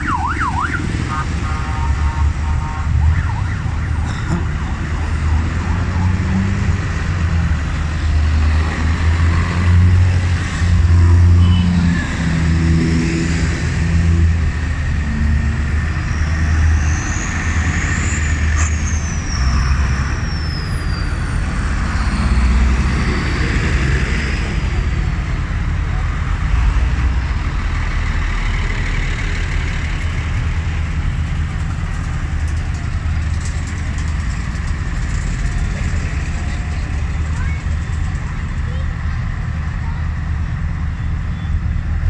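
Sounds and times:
high siren-like tone: 0.0 - 4.0
tractor engines droning: 0.0 - 42.0.

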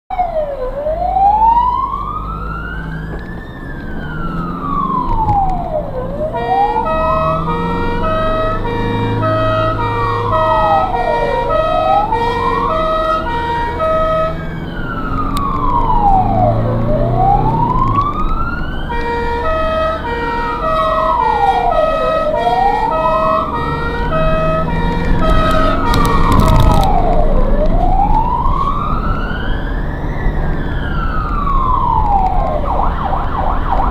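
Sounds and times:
ambulance siren wailing: 0.1 - 33.9
engine and road rumble: 0.1 - 33.9
pulsing siren tone: 0.1 - 33.9
short harsh siren burst: 6.2 - 18.2, 18.9 - 29.1.

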